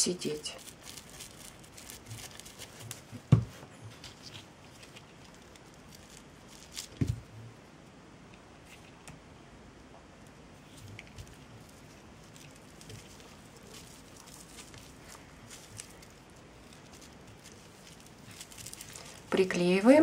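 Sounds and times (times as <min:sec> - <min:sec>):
dull thumps: 0:03.1 - 0:03.7
faint rustles: 0:10.5 - 0:20.0.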